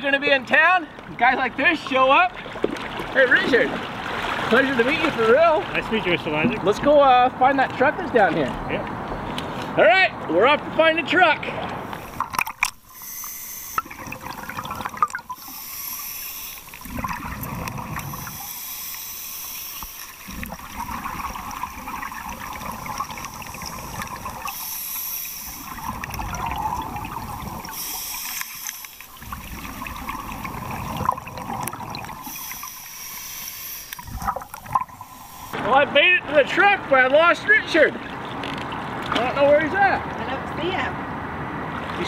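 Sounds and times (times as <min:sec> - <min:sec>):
bubbling exhalations: 0:11.9 - 0:35.6
regulator hiss on inhalation: 0:12.8 - 0:14.0, 0:15.4 - 0:16.8, 0:18.1 - 0:20.4, 0:24.4 - 0:25.8, 0:27.6 - 0:29.2, 0:32.2 - 0:35.6.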